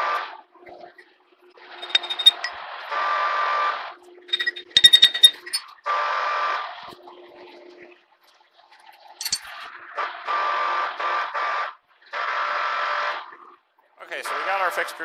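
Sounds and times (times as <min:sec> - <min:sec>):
light metal clink: 0:01.8 - 0:02.5, 0:04.3 - 0:05.6, 0:09.2 - 0:09.6
machine traverse whining: 0:01.8 - 0:02.5, 0:04.3 - 0:05.6.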